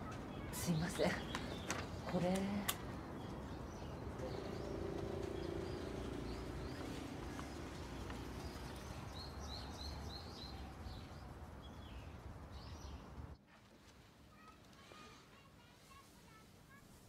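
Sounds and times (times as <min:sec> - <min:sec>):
small birds chirping: 0:00.0 - 0:13.4.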